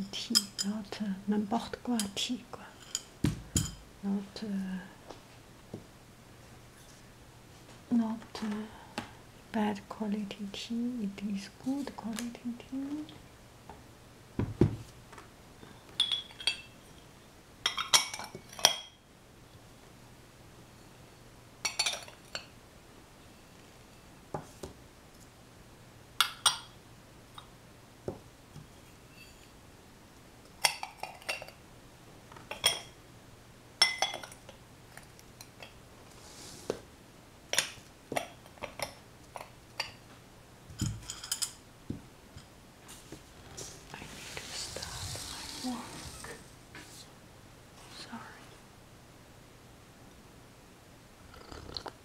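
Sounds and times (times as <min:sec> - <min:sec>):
porcelain and glass tableware clinking: 0:02.8 - 0:03.8, 0:16.0 - 0:17.0, 0:17.6 - 0:19.0, 0:21.6 - 0:22.5, 0:33.8 - 0:34.4, 0:40.8 - 0:41.6.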